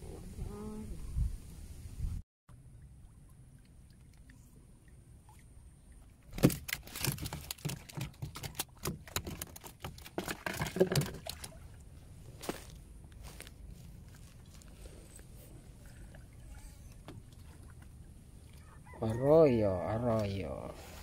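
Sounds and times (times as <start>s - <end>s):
water splashing: 2.6s - 12.8s, 13.7s - 19.0s
knocks and rattles in small boat: 6.3s - 11.4s.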